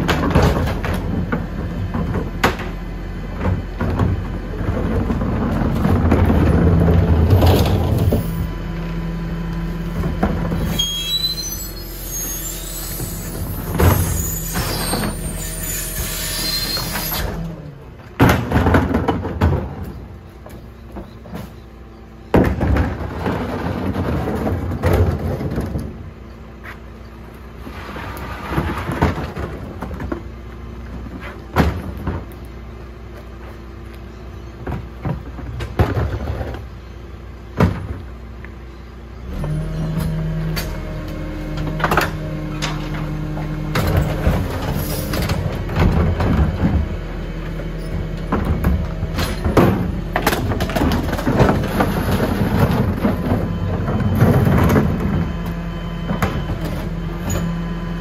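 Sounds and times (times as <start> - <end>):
rubbish clattering into hopper: 0.0 - 8.7, 12.7 - 26.2, 27.6 - 32.6, 39.4 - 57.8
wheelie bins clunking on lifter: 0.0 - 26.6, 27.2 - 58.0
garbage truck engine hum: 0.0 - 58.0.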